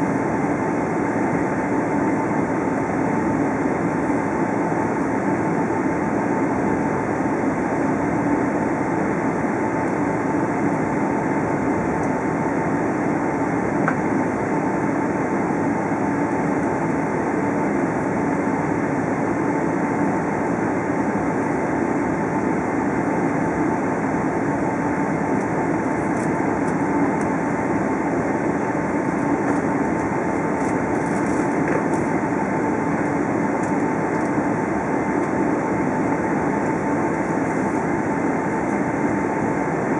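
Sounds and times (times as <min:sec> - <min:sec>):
aircraft cabin rumble: 0:19.9 - 0:39.9.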